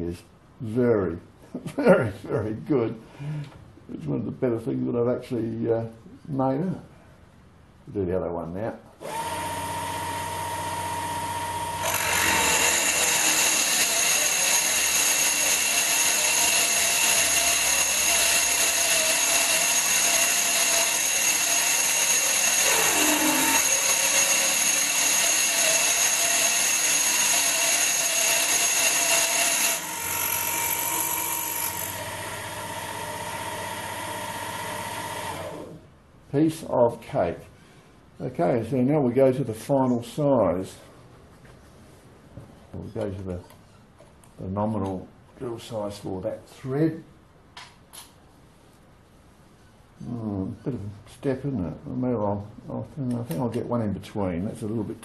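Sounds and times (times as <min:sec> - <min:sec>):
drill cutting into metal: 0:09.0 - 0:35.8
drill motor humming: 0:09.0 - 0:35.8.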